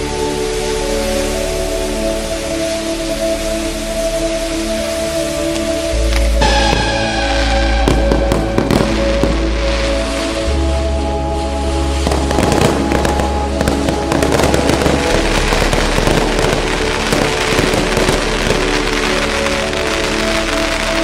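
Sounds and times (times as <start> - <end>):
music with long held notes: 0.0 - 21.0
fireworks crackling and popping: 4.9 - 10.6, 11.8 - 21.0.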